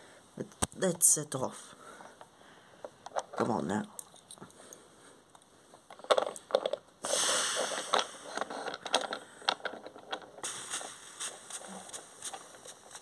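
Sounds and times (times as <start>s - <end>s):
toy trains clicking on track: 5.9s - 13.0s.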